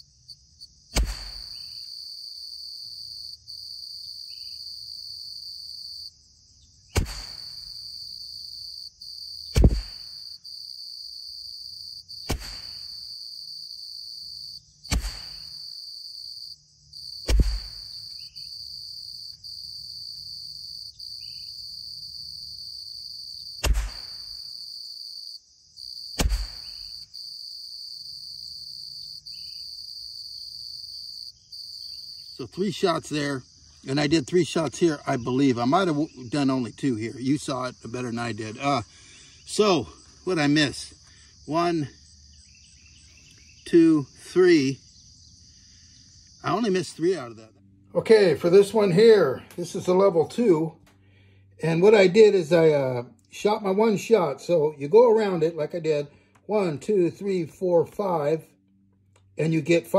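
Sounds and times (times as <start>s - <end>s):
crickets chirring: 0.0s - 59.9s
rifle shots: 1.0s - 1.7s, 7.0s - 7.6s, 9.6s - 10.1s, 12.3s - 13.0s, 14.9s - 15.5s, 17.3s - 17.9s, 23.6s - 24.3s, 26.2s - 26.9s.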